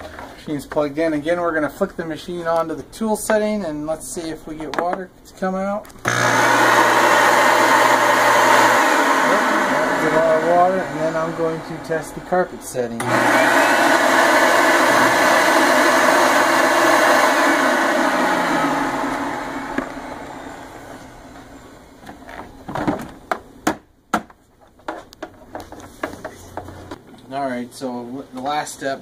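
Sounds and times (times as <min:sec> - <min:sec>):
carpet cleaner running: 0:06.0 - 0:21.9.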